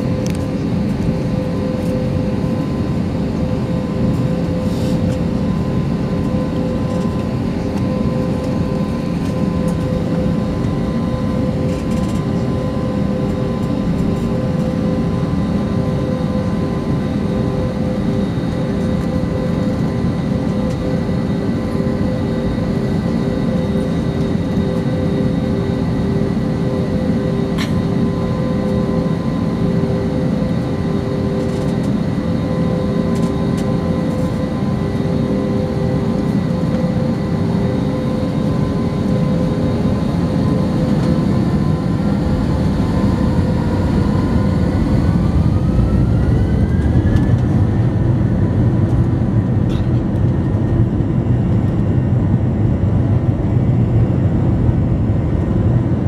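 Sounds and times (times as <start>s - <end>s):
jet engines humming: 0.0s - 56.0s
engine whine rising in pitch: 22.0s - 49.6s.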